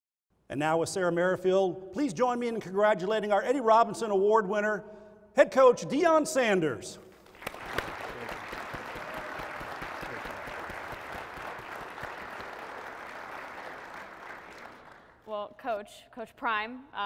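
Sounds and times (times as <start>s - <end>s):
audience applauding: 7.2s - 15.2s.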